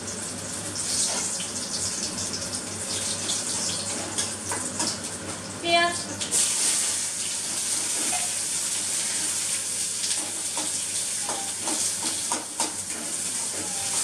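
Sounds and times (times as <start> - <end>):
onion sizzling in oil: 0.0 - 14.0.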